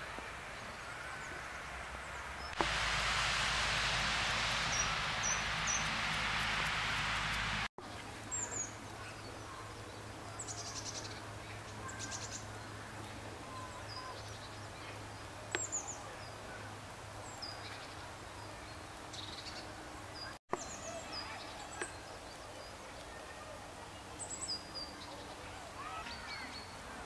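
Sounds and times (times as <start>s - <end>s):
small birds chirping: 0.5s - 27.0s
steady low hum: 2.5s - 7.7s.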